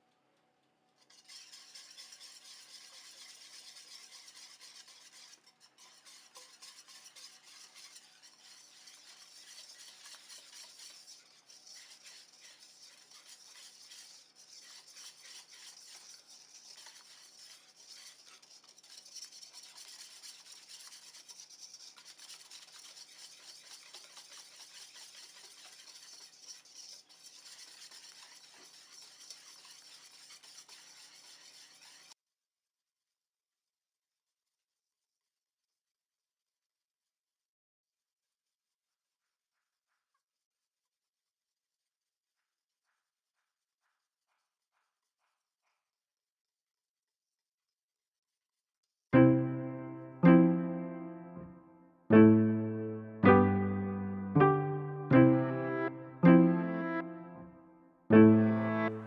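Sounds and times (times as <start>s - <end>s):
whisk scraping metal bowl: 1.0s - 32.2s, 58.4s - 59.0s.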